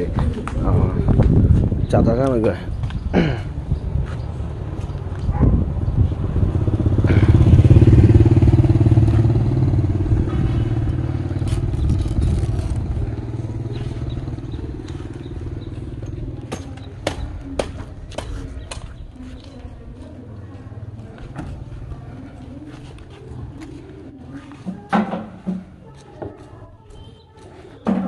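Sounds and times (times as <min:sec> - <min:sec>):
motorbike engine running: 0:05.3 - 0:18.2.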